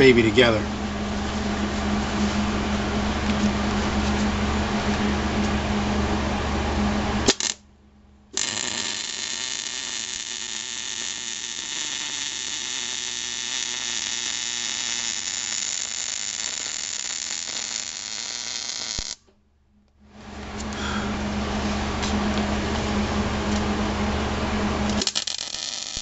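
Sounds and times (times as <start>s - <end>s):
welding arc hissing: 8.4s - 19.2s, 25.0s - 26.0s.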